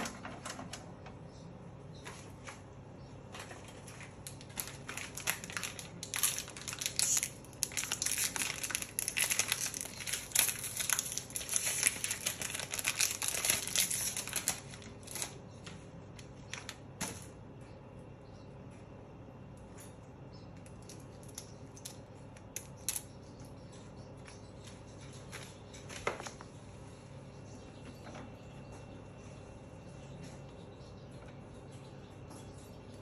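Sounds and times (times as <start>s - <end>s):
plastic packaging crinkling: 3.4s - 17.3s.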